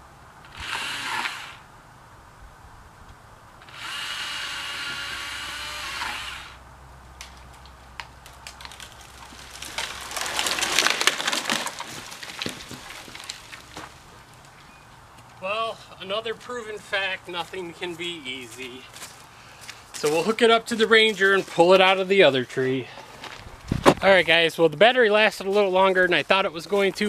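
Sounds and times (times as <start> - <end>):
battery chainsaw cutting: 0.4 - 1.6, 3.6 - 6.6
wood cracking and splintering: 7.2 - 14.6.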